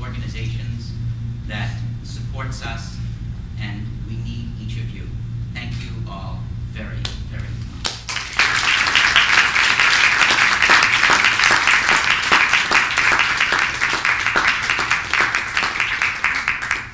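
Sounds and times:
audience applauding: 7.9s - 16.9s.

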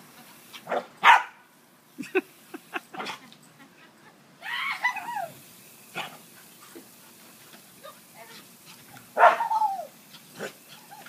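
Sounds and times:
garden hose spray: 0.0s - 3.8s, 4.4s - 11.0s
small dog barking and yipping: 0.7s - 1.4s, 9.2s - 11.0s.

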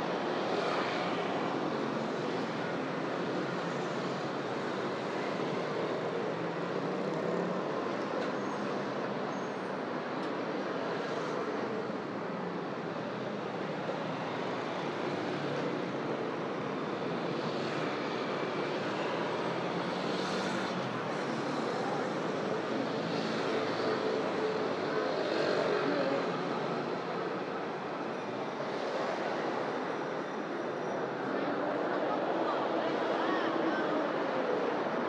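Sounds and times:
city traffic noise: 0.0s - 35.0s.

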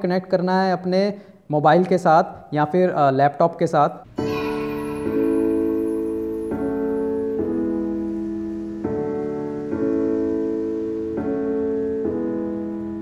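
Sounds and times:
song with keyboard chords: 4.1s - 13.0s.

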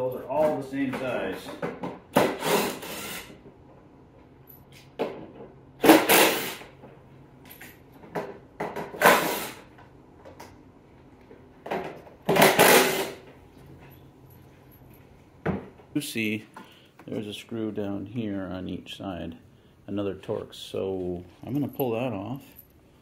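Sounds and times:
clicks and clinks of handling: 7.4s - 8.4s, 13.3s - 15.3s.

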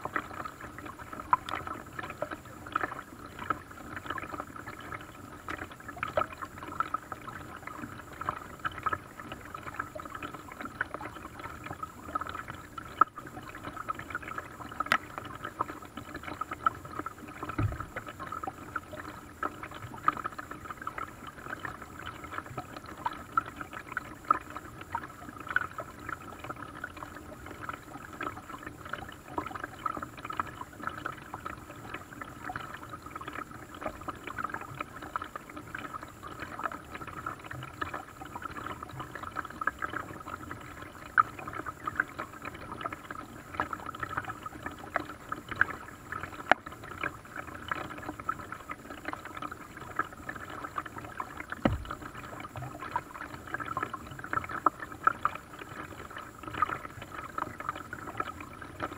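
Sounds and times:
water lapping against boat hull: 0.0s - 58.9s
dull low thump: 17.6s - 17.9s, 51.6s - 52.0s.

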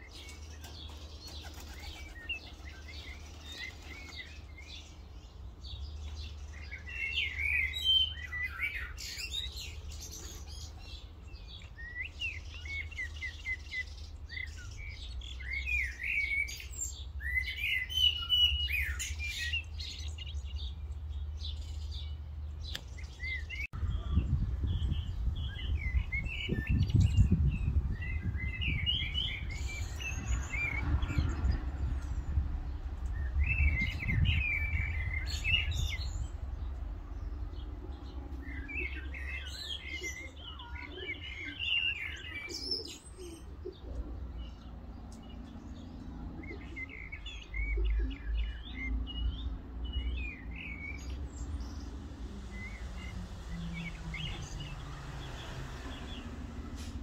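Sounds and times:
birds chirping: 0.0s - 57.0s
wind rumble on microphone: 23.6s - 38.2s.

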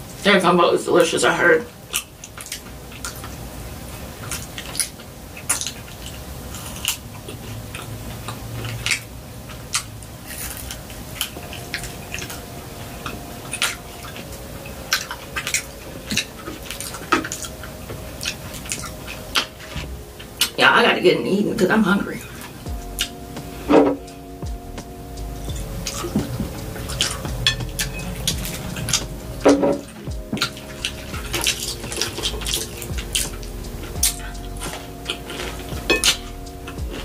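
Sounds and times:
chewing and biting fried chicken: 1.9s - 12.4s, 25.8s - 37.0s.

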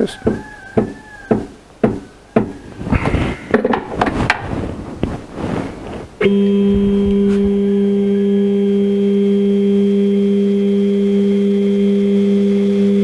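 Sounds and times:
sharp knocks and taps: 0.2s - 2.6s
stepper motor whine: 6.2s - 13.0s.

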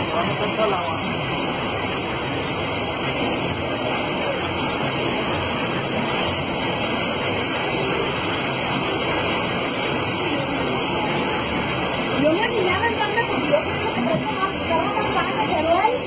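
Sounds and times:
floodwater rushing against car: 0.0s - 16.0s.

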